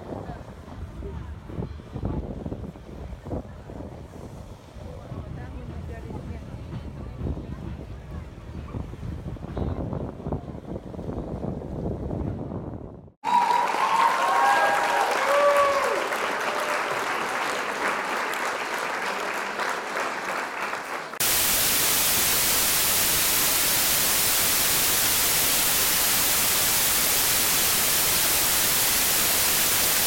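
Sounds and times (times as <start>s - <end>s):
rough noisy hiss: 21.2s - 30.0s
white noise static: 21.2s - 30.0s.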